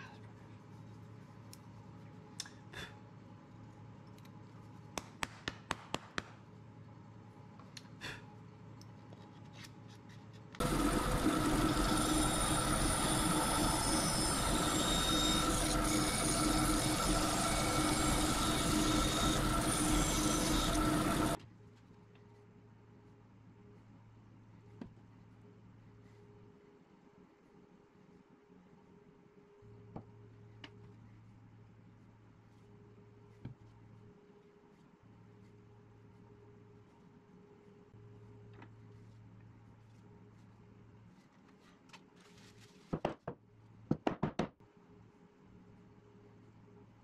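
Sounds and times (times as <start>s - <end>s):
bandsaw cutting wood: 10.6s - 21.4s.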